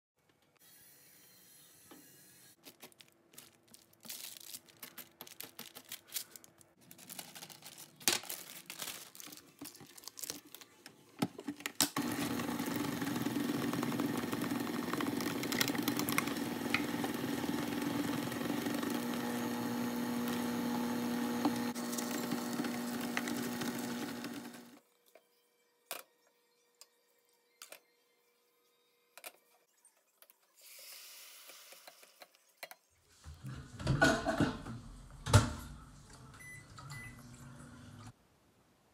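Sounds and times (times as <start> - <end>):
electric hand mixer running: 12.0 - 24.8.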